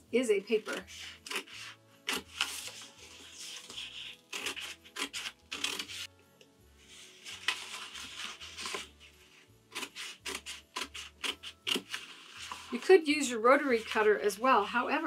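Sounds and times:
scissors snipping paper: 0:00.5 - 0:06.1, 0:07.3 - 0:08.9, 0:09.7 - 0:13.0.

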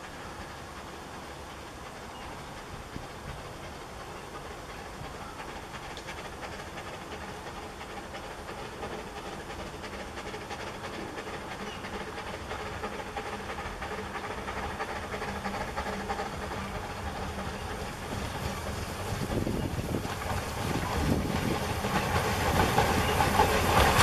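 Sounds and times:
train wheels running: 0:00.0 - 0:24.0
steam locomotive puffing: 0:00.1 - 0:24.0.

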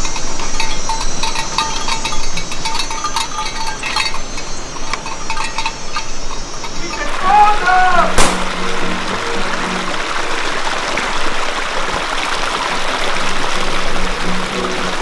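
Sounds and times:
small metal bells clinking: 0:00.0 - 0:08.0
high insect buzz: 0:00.0 - 0:11.0.

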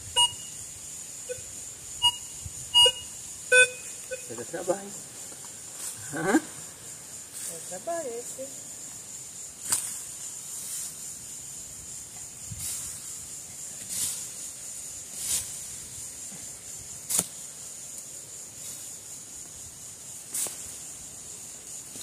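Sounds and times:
high insect buzz: 0:00.0 - 0:22.0
shovel chopping into dry dirt: 0:17.0 - 0:17.4.

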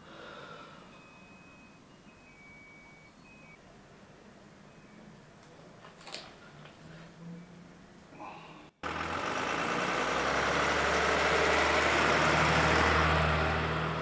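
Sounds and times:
fire truck engine running: 0:08.8 - 0:14.0.

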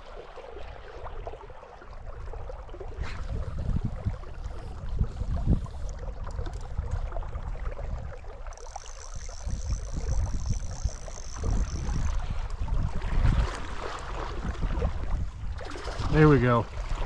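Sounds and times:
wind buffeting microphone: 0:02.0 - 0:17.0
thin high tone: 0:08.5 - 0:12.2.

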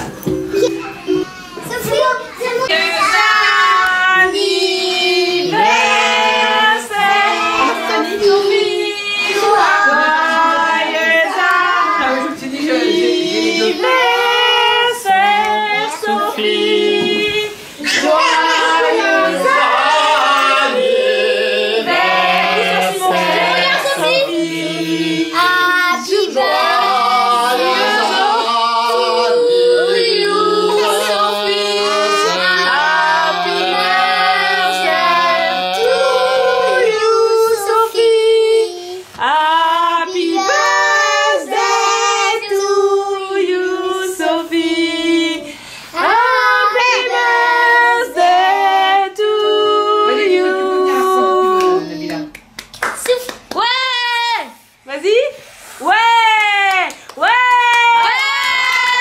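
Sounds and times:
family singing birthday song: 0:00.0 - 0:59.0.

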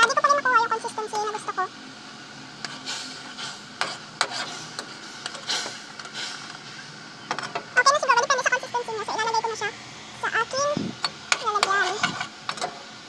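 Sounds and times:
syrup bubbling hiss: 0:01.9 - 0:07.3
metal spoon scraping wok: 0:02.6 - 0:06.4, 0:11.0 - 0:12.4.

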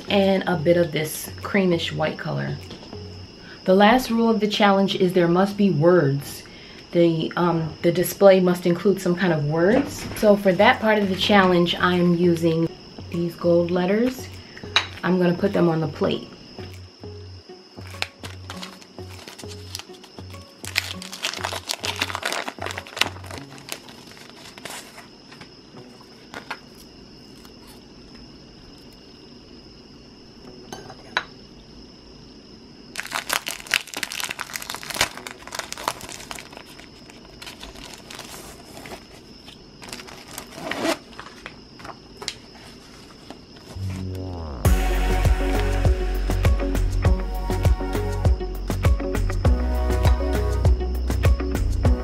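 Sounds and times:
stickers peeled off backing: 0:17.8 - 0:25.4, 0:33.0 - 0:43.8
sticker sheets crinkling: 0:17.8 - 0:27.8, 0:33.0 - 0:43.8.

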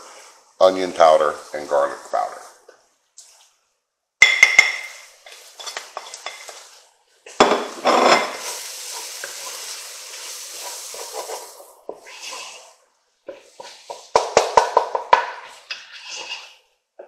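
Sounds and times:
wooden spoon scraping a pot: 0:04.8 - 0:06.9, 0:07.7 - 0:16.8
vegetables sizzling: 0:04.9 - 0:14.1.

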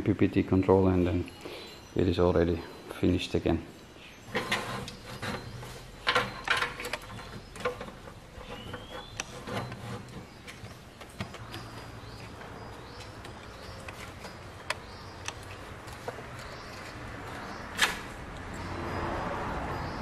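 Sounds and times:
clicks knocks and rubbing of handling: 0:04.3 - 0:18.1.

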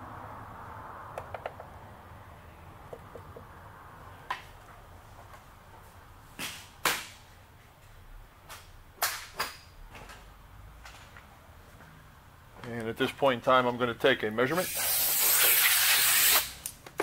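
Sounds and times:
sharp clicks and knocks: 0:01.1 - 0:01.7.

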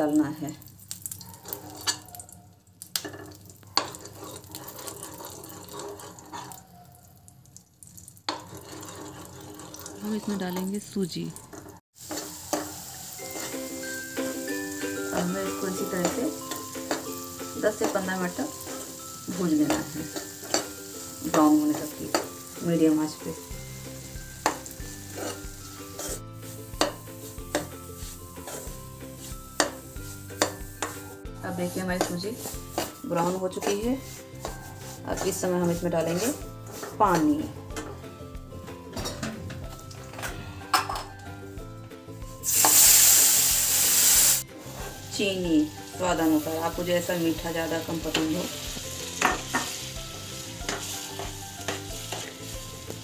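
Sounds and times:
ghee sizzling: 0:00.0 - 0:53.0
metal spoon stirring in a pan: 0:00.8 - 0:02.3, 0:02.9 - 0:06.8, 0:08.2 - 0:38.1, 0:42.4 - 0:53.0
spoon knocking on pan: 0:29.6 - 0:31.0, 0:49.2 - 0:49.7.

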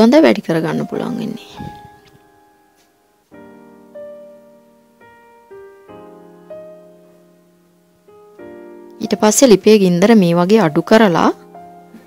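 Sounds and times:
slow piano notes: 0:00.8 - 0:12.0.

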